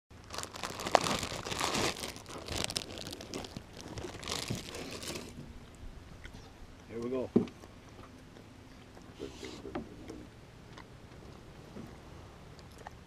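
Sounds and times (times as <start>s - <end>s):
plastic bag crinkling: 0.1s - 5.4s.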